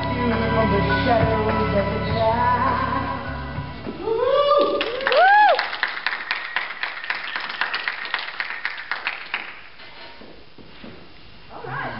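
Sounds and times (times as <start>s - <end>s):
small audience clapping: 4.6s - 9.8s.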